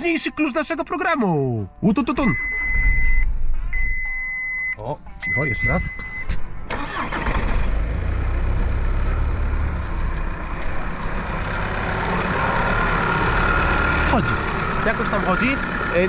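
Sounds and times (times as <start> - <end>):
diesel engine starting and idling: 5.4 - 16.0.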